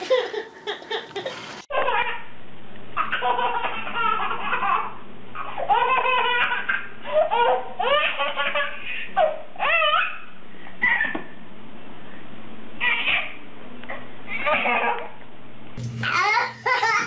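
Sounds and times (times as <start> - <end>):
baby laughing: 0.0 - 2.2, 3.0 - 11.2, 16.0 - 17.0.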